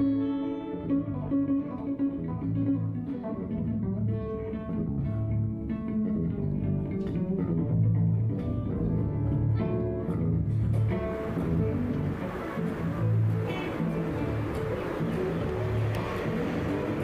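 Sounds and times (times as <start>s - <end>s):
cello played pizzicato: 0.0s - 17.0s
electric guitar picking notes: 0.0s - 17.0s
low sustained bass notes: 0.0s - 17.0s.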